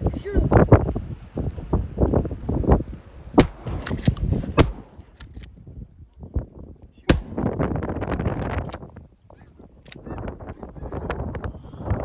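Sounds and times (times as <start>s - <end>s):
sharp pops or clicks: 3.4s - 5.5s, 7.1s - 7.6s.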